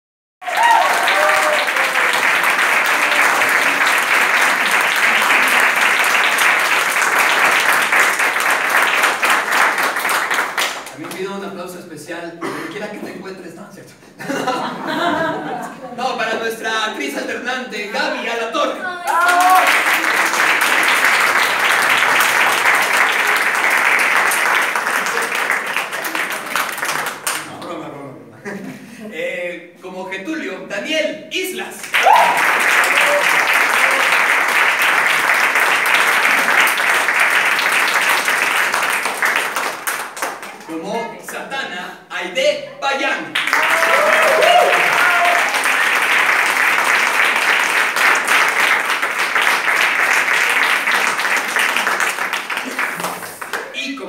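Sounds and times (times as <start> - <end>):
audience clapping: 0.4 - 11.7, 18.9 - 27.8, 31.8 - 41.4, 43.3 - 54.0
person calling out: 18.8 - 19.7.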